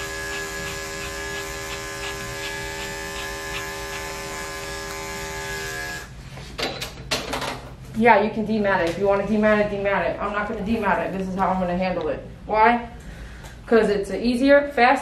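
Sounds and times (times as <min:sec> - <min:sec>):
electric clippers running: 0:00.0 - 0:06.1.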